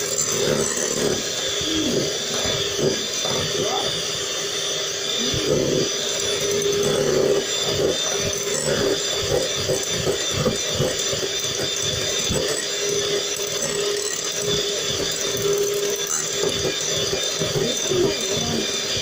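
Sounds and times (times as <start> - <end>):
electric hand mixer humming: 0.0 - 19.0.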